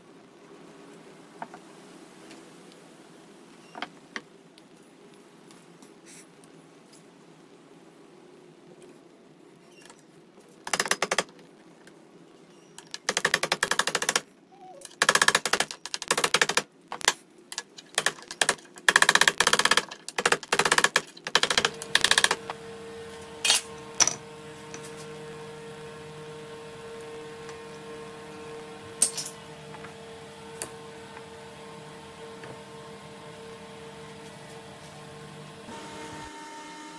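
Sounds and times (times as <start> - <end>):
steady hum with held tone: 19.3 - 36.9.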